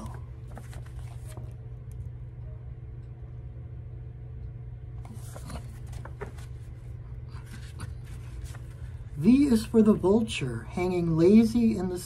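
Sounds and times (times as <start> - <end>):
paper page rustling: 0.0 - 1.6, 5.0 - 9.2
steady low hum: 0.0 - 12.0.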